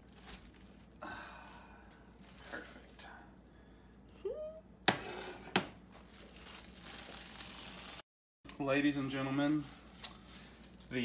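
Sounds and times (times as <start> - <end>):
plastic wrap crinkling: 0.0 - 3.1, 6.0 - 11.0.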